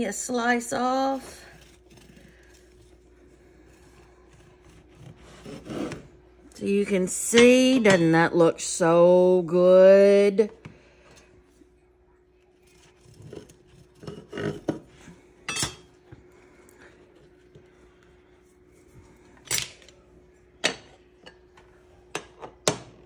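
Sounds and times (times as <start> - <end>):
faint steady hum: 0.0 - 23.0
knives and glass dish clinking: 15.5 - 15.9.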